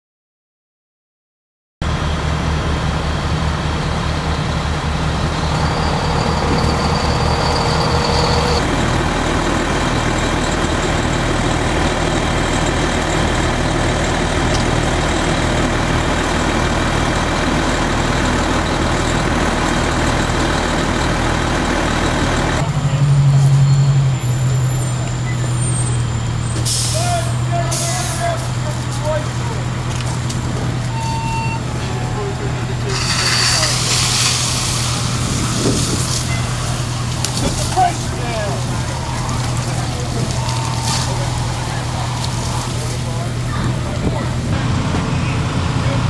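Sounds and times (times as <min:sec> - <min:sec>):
fire engine running: 0:01.8 - 0:46.0
high steady tone: 0:04.8 - 0:08.7, 0:37.8 - 0:44.3.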